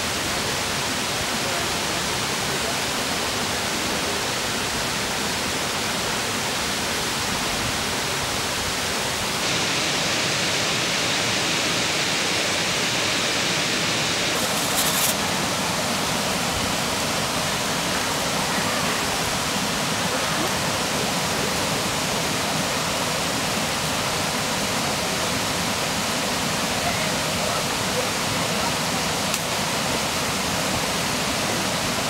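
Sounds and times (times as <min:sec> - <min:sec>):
waterfall rushing: 0:00.0 - 0:32.0
short rustle: 0:14.3 - 0:15.3.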